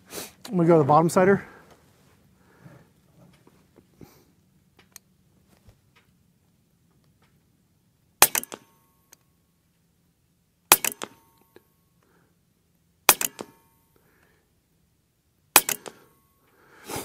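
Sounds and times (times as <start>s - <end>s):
air rifle shots with echoes: 8.2s - 8.8s, 10.7s - 11.4s, 13.1s - 13.7s, 15.5s - 16.2s.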